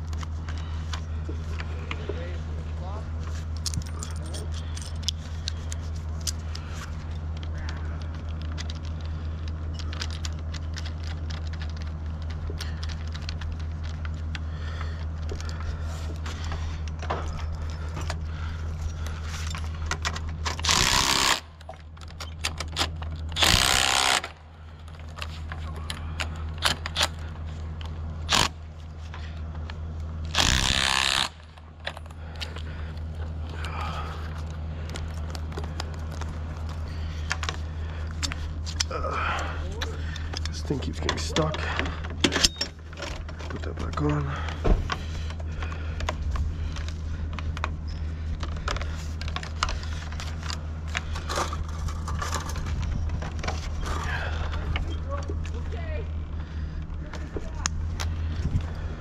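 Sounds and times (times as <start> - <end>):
cable hardware clicking and scraping: 0.0 - 59.0
steady low hum: 0.0 - 59.0.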